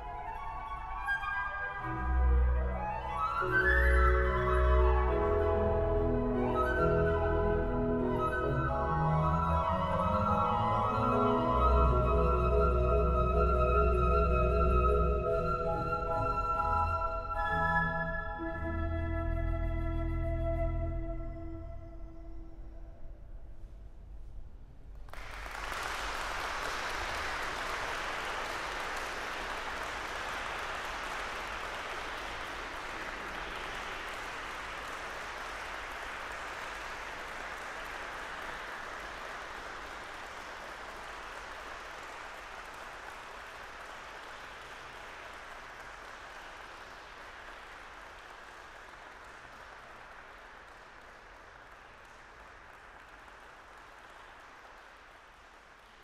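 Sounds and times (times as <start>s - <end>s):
audience applauding: 25.0s - 56.0s.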